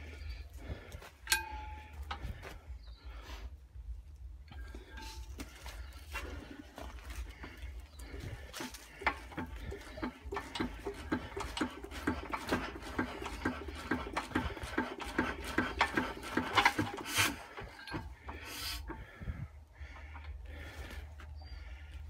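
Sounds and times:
engine turned over by hand clicking: 6.8s - 19.1s.

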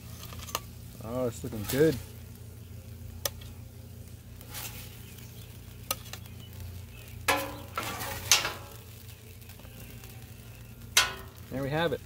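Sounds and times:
metal spatula scraping griddle: 0.0s - 0.7s, 1.3s - 2.1s, 4.4s - 6.3s, 7.2s - 9.1s, 11.0s - 11.5s
faint sizzle: 0.0s - 12.0s.

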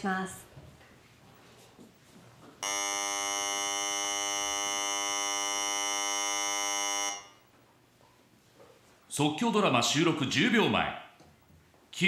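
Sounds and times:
harsh buzzer: 2.6s - 7.5s.

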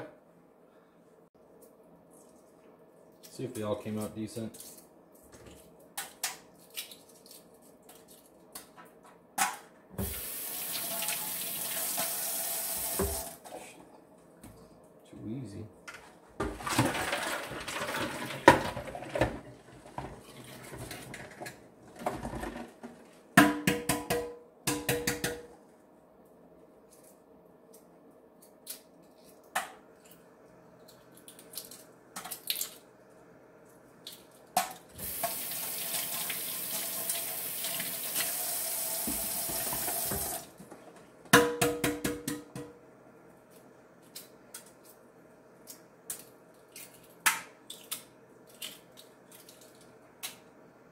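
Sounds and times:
kitchen tap running: 10.0s - 13.4s, 35.0s - 40.5s.

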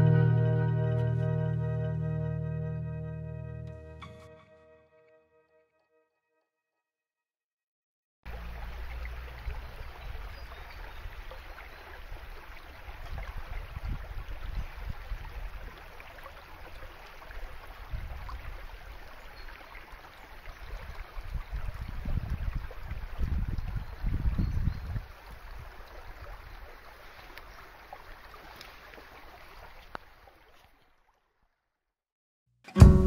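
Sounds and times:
stream rushing over stones: 8.3s - 31.0s.

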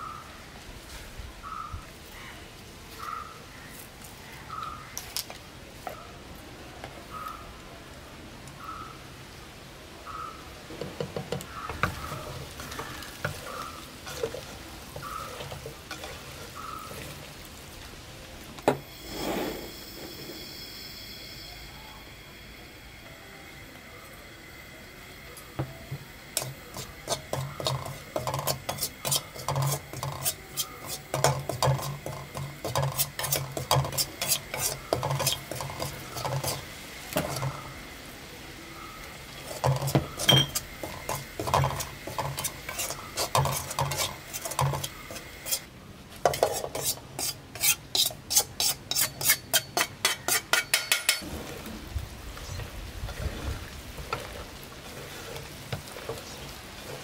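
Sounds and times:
metal spoon scraping a pan: 11.6s - 17.2s, 26.4s - 37.6s, 39.4s - 51.2s, 53.2s - 57.0s.

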